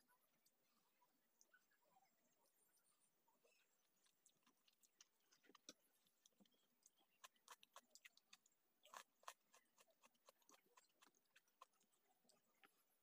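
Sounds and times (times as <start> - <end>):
person chewing noodles: 3.6 - 12.7.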